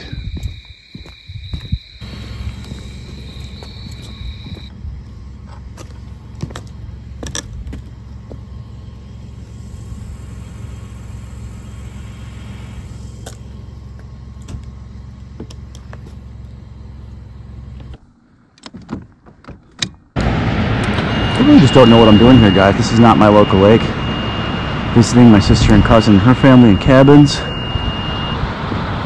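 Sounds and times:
boat motor humming: 0:02.0 - 0:18.4.

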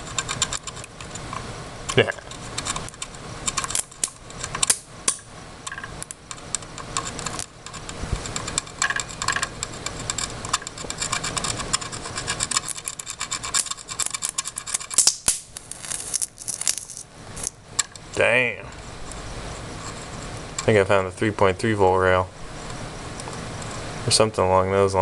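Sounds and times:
electric arc crackling: 0:13.6 - 0:17.6
sharp electric pops: 0:14.9 - 0:17.6.

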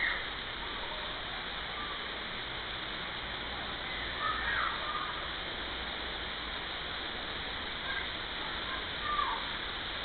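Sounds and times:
faint bird calls: 0:00.0 - 0:00.3
rushing water: 0:00.0 - 0:10.0.

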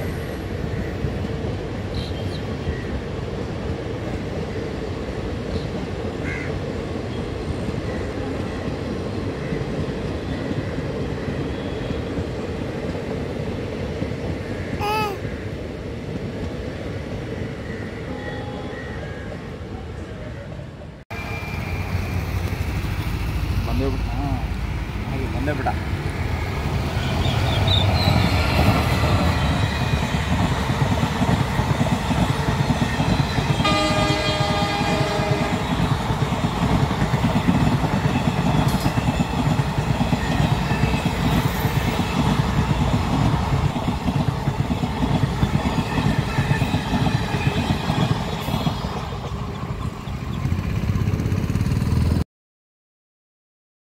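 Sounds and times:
train passing with rumble: 0:00.0 - 0:52.2
locomotive horn: 0:33.6 - 0:35.7.

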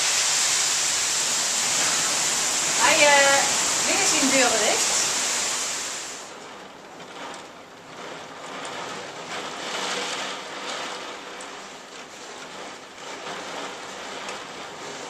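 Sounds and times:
heavy rain pouring: 0:00.0 - 0:15.0
rain splashes: 0:00.0 - 0:15.0.

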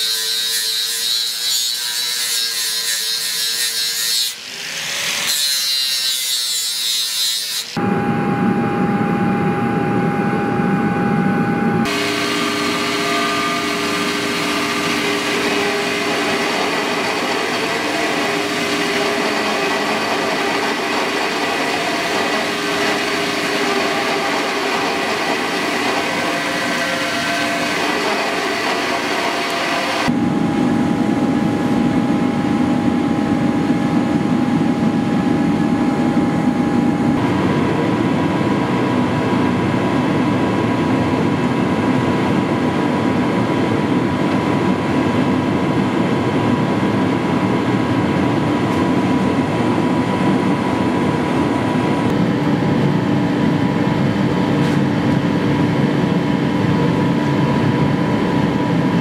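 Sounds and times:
angle grinder cutting steel: 0:00.0 - 0:07.8, 0:11.9 - 0:30.1.

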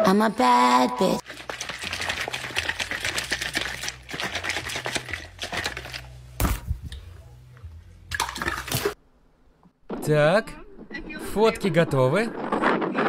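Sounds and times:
plastic bottle rattling: 0:01.2 - 0:06.0.

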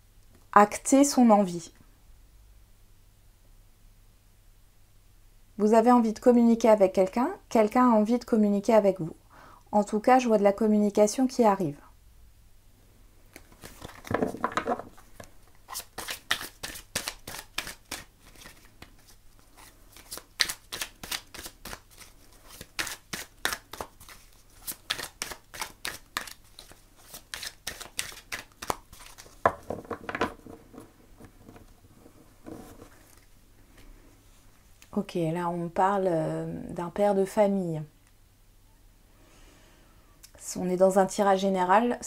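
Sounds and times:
cards being shuffled: 0:13.3 - 0:33.9
cards rustling: 0:13.3 - 0:33.9.

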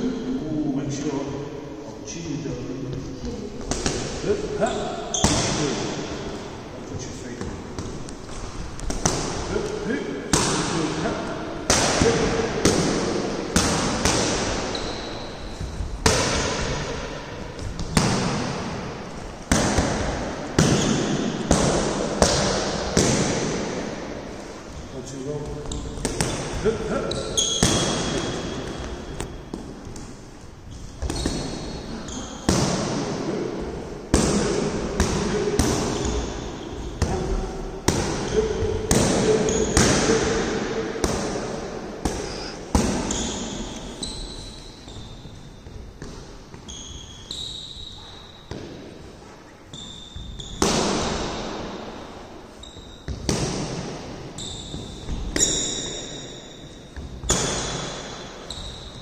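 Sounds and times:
short high squeaks: 0:14.7 - 0:15.4, 0:27.1 - 0:29.4, 0:43.1 - 0:45.6, 0:46.7 - 0:48.4, 0:49.7 - 0:50.6, 0:52.6 - 0:53.1, 0:54.4 - 0:56.9.

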